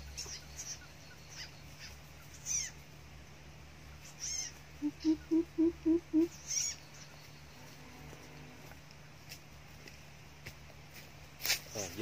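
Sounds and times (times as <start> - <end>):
high squeaky bird call: 0.1 - 2.8, 4.0 - 7.2
bird deep hooting call: 4.2 - 6.8.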